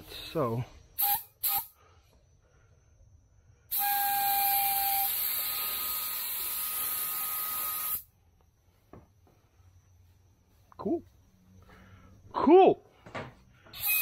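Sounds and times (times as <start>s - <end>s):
spray gun whistle: 1.0s - 1.8s, 3.7s - 8.1s, 13.8s - 14.0s.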